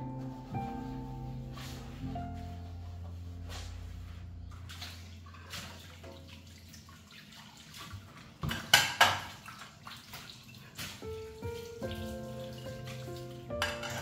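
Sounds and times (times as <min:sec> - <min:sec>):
glass dishes clattering in a rack: 0:08.4 - 0:09.3, 0:13.5 - 0:14.0
dishes clinking: 0:08.4 - 0:09.4, 0:12.9 - 0:14.0.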